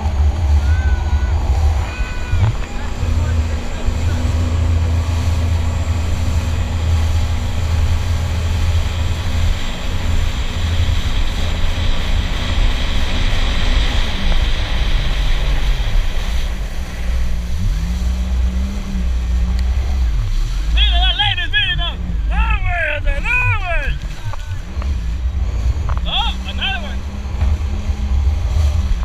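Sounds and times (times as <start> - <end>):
wind noise: 0.0 - 20.8, 22.9 - 29.0
rushing water spray: 0.0 - 22.2
jet ski engine running: 0.0 - 29.0.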